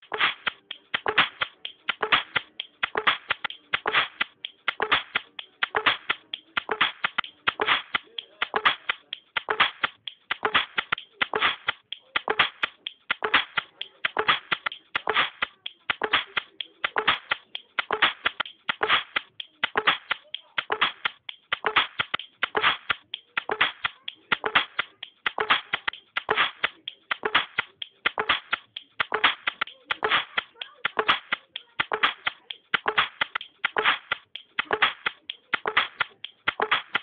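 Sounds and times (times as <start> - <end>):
electronic music with clap beats: 0.0 - 37.0.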